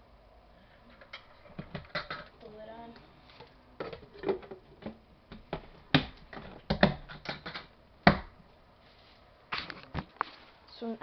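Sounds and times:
plastic bucket clicks and knocks: 1.5 - 2.3.

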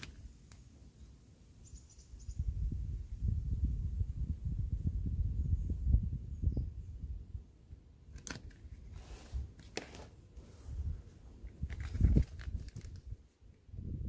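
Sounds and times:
tape ripping: 8.2 - 9.0
paper crinkling rustles: 11.4 - 13.2.

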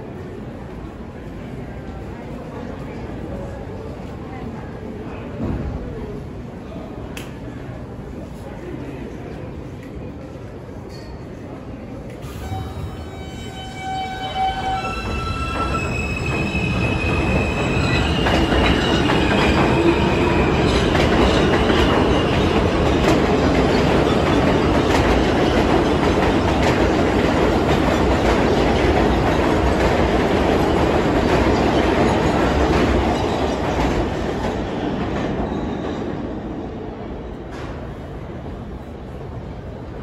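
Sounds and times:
train wheels rumbling and clicking: 14.5 - 36.4.

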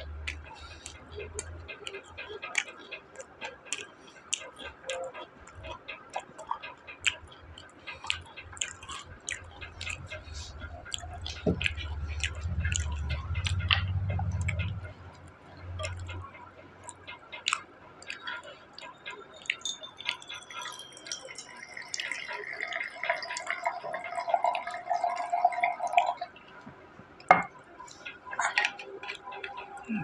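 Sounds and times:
liquid pouring into a glass: 19.6 - 26.4.

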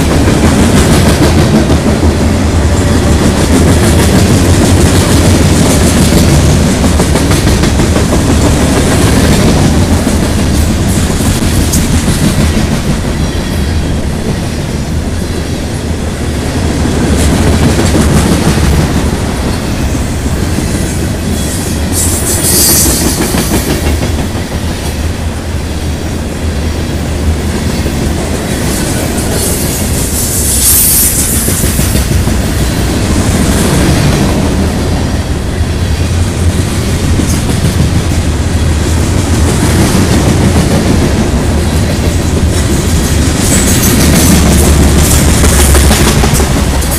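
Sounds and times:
clickety-clack over rail joints: 0.0 - 14.5, 16.6 - 25.1, 31.0 - 35.0, 36.1 - 46.9
train wheels rumbling on rails: 0.0 - 46.9.

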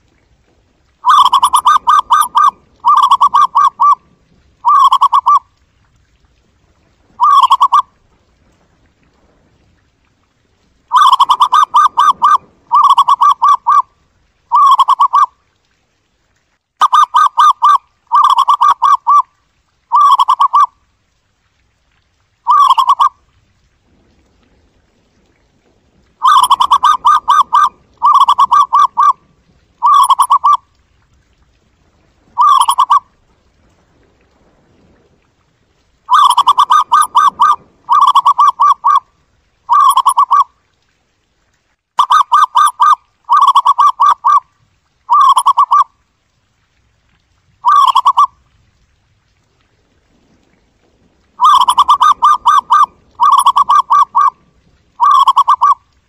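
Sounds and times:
dove cooing: 1.0 - 4.0, 4.6 - 5.4, 7.2 - 7.8, 10.9 - 13.8, 14.5 - 15.3, 16.9 - 19.2, 19.9 - 20.7, 22.5 - 23.2, 26.2 - 29.2, 29.8 - 30.6, 32.4 - 33.0, 36.1 - 39.0, 39.7 - 40.5, 42.0 - 44.4, 45.1 - 45.8, 47.6 - 48.3, 51.4 - 54.4, 55.0 - 55.8.

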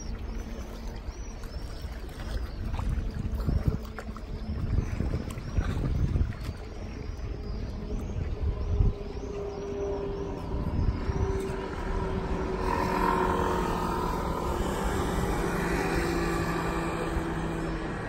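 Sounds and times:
scooters and cars passing: 8.6 - 18.0.

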